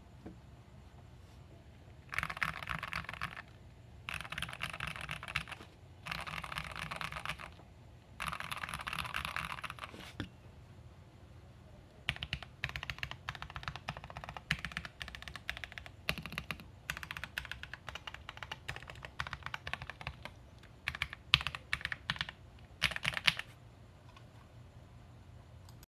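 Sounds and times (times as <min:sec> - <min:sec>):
mechanical keyboard typing: 0:02.1 - 0:07.6, 0:08.2 - 0:09.9, 0:12.0 - 0:23.5.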